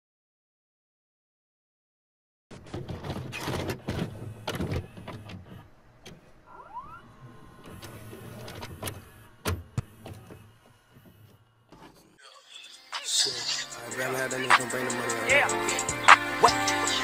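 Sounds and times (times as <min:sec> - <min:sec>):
tape mechanism clicks and clunks: 0:02.5 - 0:12.2
rising motor whirr: 0:05.0 - 0:11.9.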